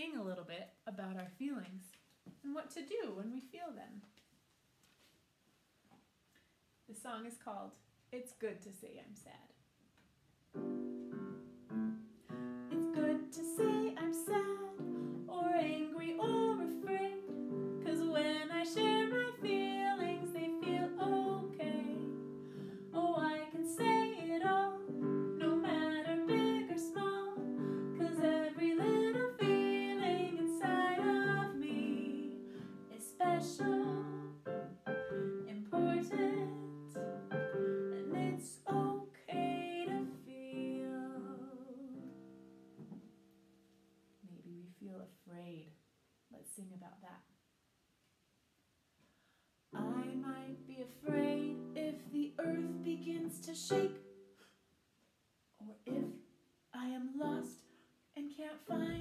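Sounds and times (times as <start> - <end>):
woman singing: 12.7 - 22.2, 22.8 - 42.2, 49.8 - 54.0, 55.6 - 56.2, 56.8 - 57.6, 58.2 - 59.0.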